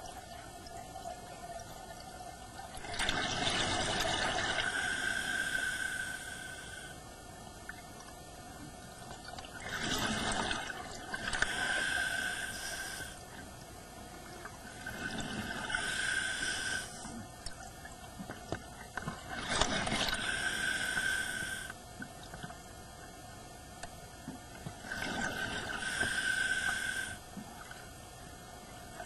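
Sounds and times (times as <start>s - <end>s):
exhaled bubbles rushing: 2.7s - 4.6s
regulator hissing inhalation: 4.6s - 7.0s, 11.4s - 13.2s, 15.7s - 17.1s, 20.1s - 21.8s, 25.7s - 27.2s.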